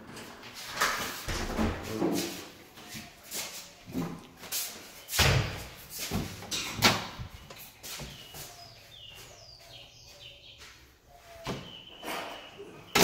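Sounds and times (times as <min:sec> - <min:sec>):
cabinet doors opening and shutting: 0:00.1 - 0:02.3, 0:05.2 - 0:07.4.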